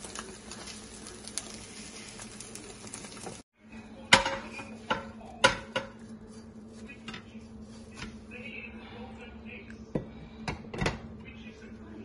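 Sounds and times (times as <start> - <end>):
frying pan and spatula clattering: 4.1 - 6.1.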